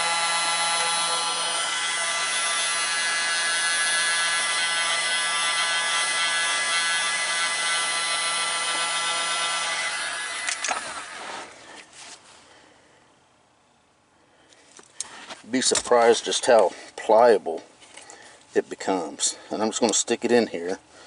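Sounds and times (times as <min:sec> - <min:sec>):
heat gun fan whirring with whine: 0:00.0 - 0:11.8.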